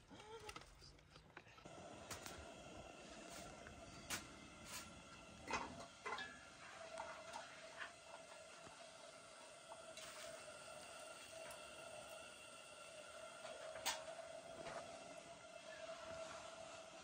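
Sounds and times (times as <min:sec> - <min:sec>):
faint steady hum: 0:00.0 - 0:17.0
stalks tapping metal pot: 0:05.5 - 0:07.4.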